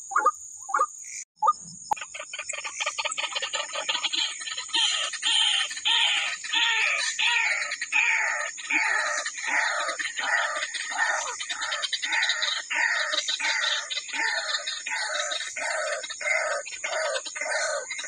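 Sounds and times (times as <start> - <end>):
waterhen harsh calls: 0.0 - 1.6.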